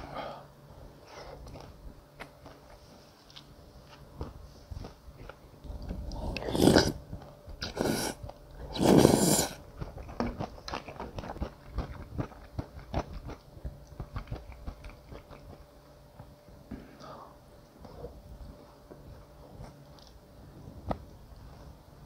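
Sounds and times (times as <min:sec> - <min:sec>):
crunchy chewing: 0:04.8 - 0:16.3.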